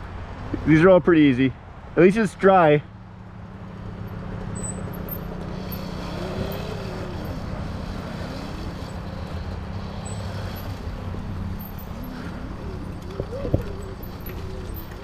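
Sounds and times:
constant low hum: 0:02.8 - 0:15.0
dirt bike engine running: 0:04.6 - 0:15.0.

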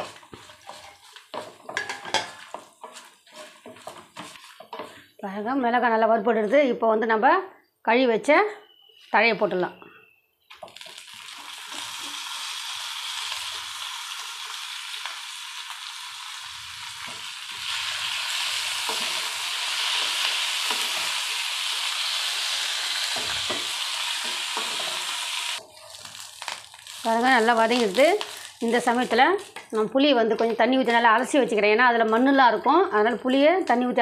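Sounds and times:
leaves sizzling in hot oil: 0:00.0 - 0:05.0, 0:10.5 - 0:30.6
wooden spatula scraping pan: 0:00.0 - 0:05.1.

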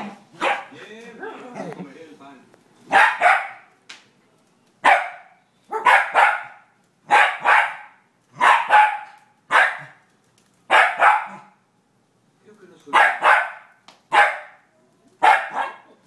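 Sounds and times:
dog barking: 0:00.0 - 0:00.8, 0:02.9 - 0:03.7, 0:04.8 - 0:10.0, 0:10.7 - 0:11.6, 0:12.9 - 0:16.0.

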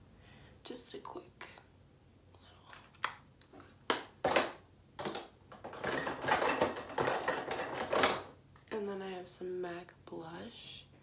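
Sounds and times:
plastic compacts clicking and clattering: 0:03.9 - 0:08.3.

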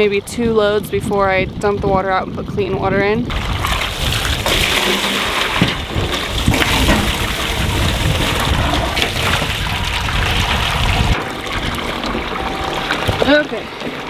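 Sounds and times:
water pouring into metal tubs: 0:03.3 - 0:14.0.

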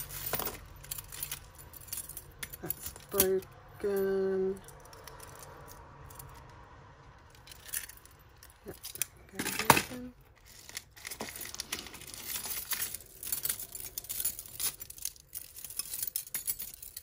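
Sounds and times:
plastic bags rustling and crinkling: 0:09.4 - 0:15.8.

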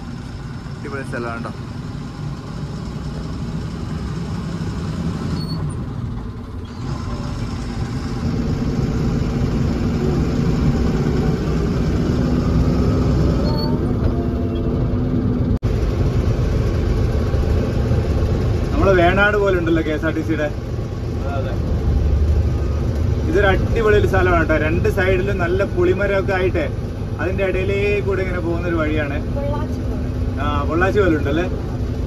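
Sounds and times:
lorry engine drone: 0:00.0 - 0:32.0
road rumble: 0:00.0 - 0:32.0.

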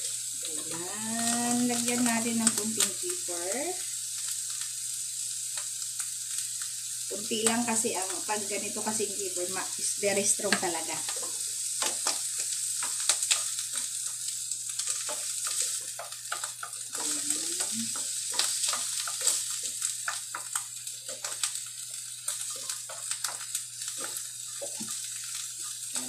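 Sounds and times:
mushrooms sizzling in a frying pan: 0:00.0 - 0:26.0.

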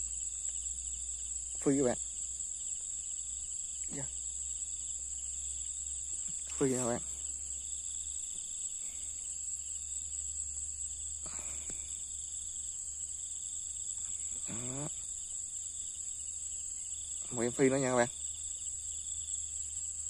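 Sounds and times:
night insects trilling: 0:00.0 - 0:20.0
man's voice: 0:17.3 - 0:18.1.

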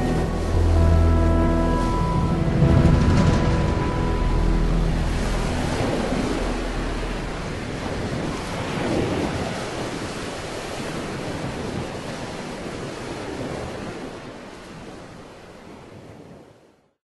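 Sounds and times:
rushing wash of noise: 0:00.0 - 0:14.5.

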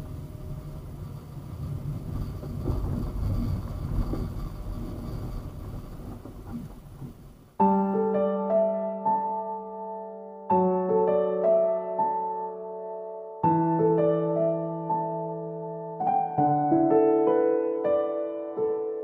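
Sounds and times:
car road and engine rumble: 0:00.0 - 0:07.6
piano music: 0:07.4 - 0:19.0.

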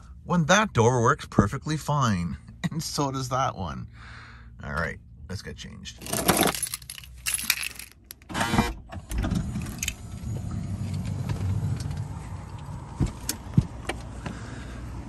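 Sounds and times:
sliding door opening: 0:08.3 - 0:12.1.

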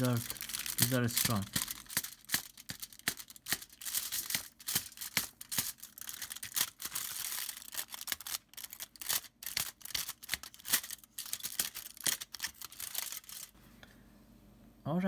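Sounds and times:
aluminium foil crinkling and tearing: 0:00.0 - 0:13.6.

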